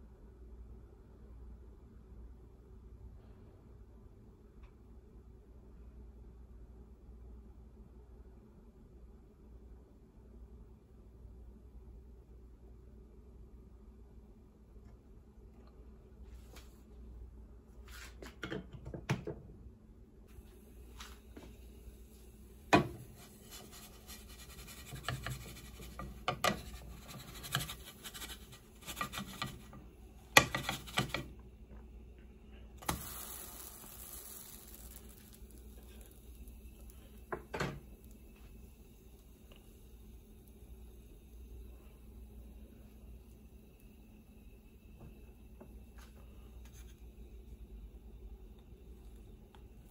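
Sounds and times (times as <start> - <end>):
wooden spatula scraping a pan: 22.8 - 29.8, 30.4 - 31.3.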